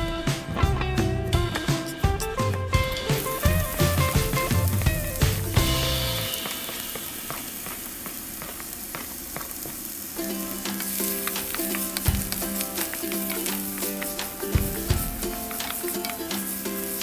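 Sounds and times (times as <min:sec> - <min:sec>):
background music: 0:00.0 - 0:07.6, 0:10.2 - 0:17.0
onion sizzling in oil: 0:01.6 - 0:17.0
wooden spatula clicking on pan: 0:10.5 - 0:17.0.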